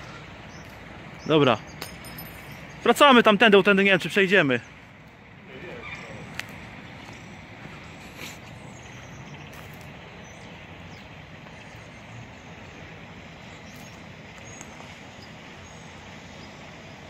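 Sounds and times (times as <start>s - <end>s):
distant traffic and industry rumble: 0.0s - 17.0s
faint footsteps on concrete: 6.3s - 8.6s.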